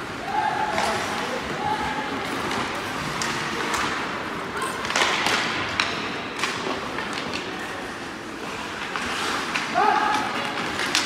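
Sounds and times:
hockey sticks and puck clacking: 0.2 - 11.0
skates scraping on ice: 8.4 - 11.0.

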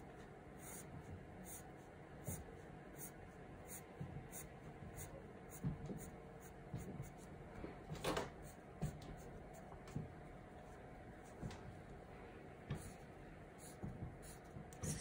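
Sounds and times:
pencil scratching on paper: 0.6 - 1.7.

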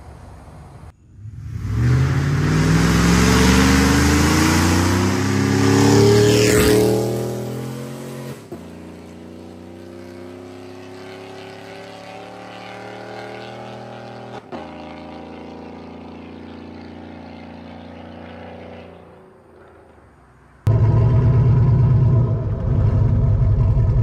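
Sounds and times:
truck engine exhaust drone: 0.0 - 6.6, 18.6 - 24.0.

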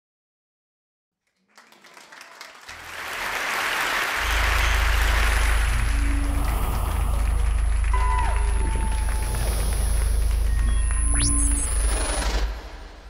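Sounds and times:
audience applauding: 1.2 - 12.8
steady low hum: 4.2 - 13.0.

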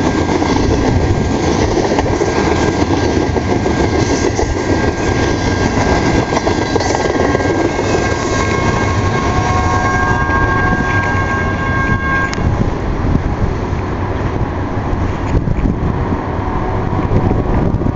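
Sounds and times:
train wheels rumbling on rail: 0.0 - 17.9
high-pitched tones: 7.9 - 12.6.

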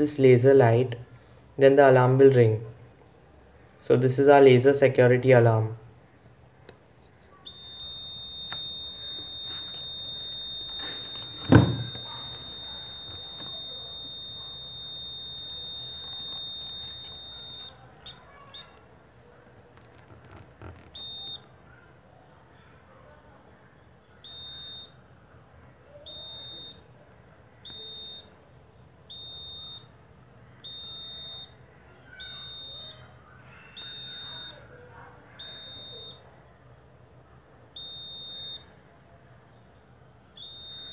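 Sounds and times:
high-pitched alarm buzzer: 7.5 - 18.7, 33.8 - 34.6
short blips: 7.5 - 18.8
short electronic beeps: 7.5 - 18.8
loud thump: 11.3 - 12.0.

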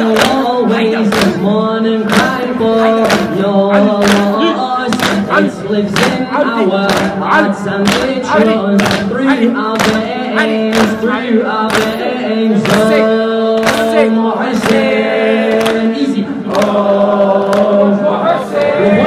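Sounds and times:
man chanting: 0.0 - 14.9
rhythmic chest-beating: 0.0 - 19.0.

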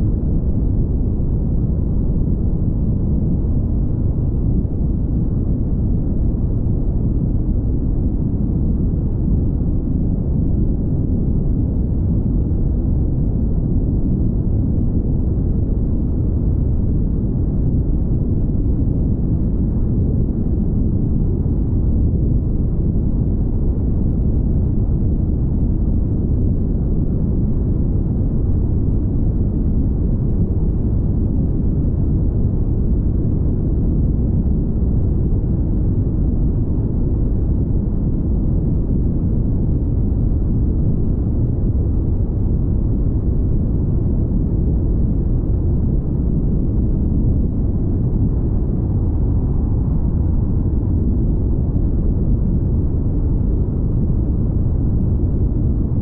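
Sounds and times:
wind noise: 0.0 - 56.0.

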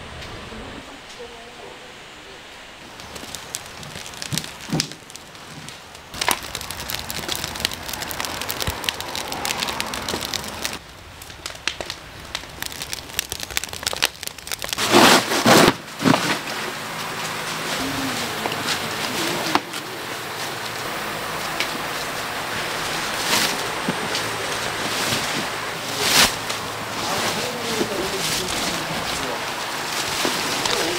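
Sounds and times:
wood fire crackling: 2.4 - 30.9
loud rustling and tearing: 2.9 - 10.8, 11.4 - 30.9
firewood knocking and clattering: 2.9 - 16.6.

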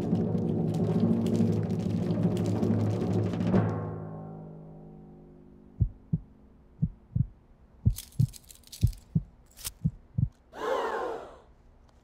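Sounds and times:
heartbeat thumps: 5.8 - 10.4.

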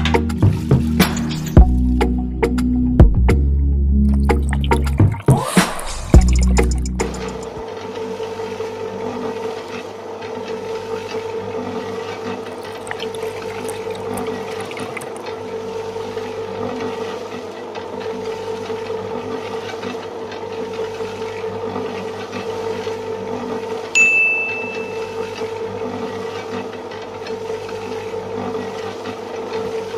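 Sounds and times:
wet cement churning: 4.1 - 7.5, 12.3 - 15.4.

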